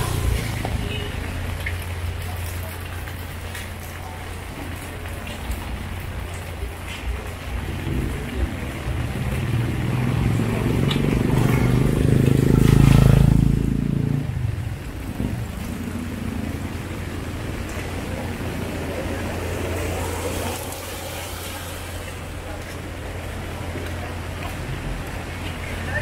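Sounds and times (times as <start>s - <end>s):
steady rain: 0.0s - 26.0s
small motorcycle engine passing: 9.3s - 17.1s.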